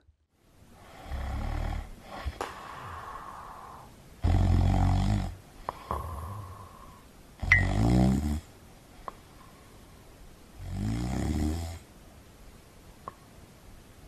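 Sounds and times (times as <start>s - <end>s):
soft breath: 0.7s - 4.6s, 5.6s - 7.2s, 9.0s - 10.1s
person snoring: 0.8s - 8.4s.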